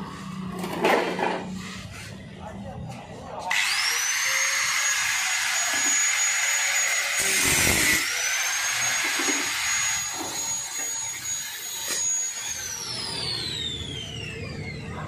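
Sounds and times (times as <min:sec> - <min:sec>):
angle grinder whining: 0:03.5 - 0:15.0.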